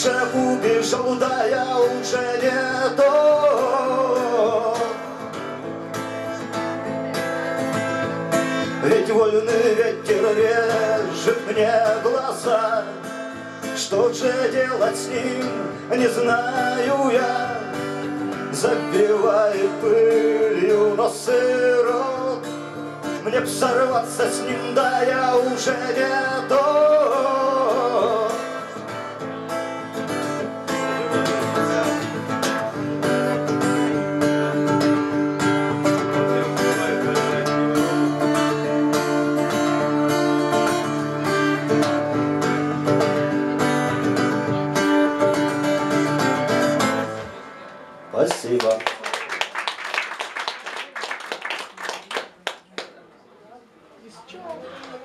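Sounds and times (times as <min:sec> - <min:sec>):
man singing: 0:00.0 - 0:05.7, 0:08.3 - 0:29.1, 0:35.9 - 0:41.7
strummed acoustic guitar: 0:00.0 - 0:48.7.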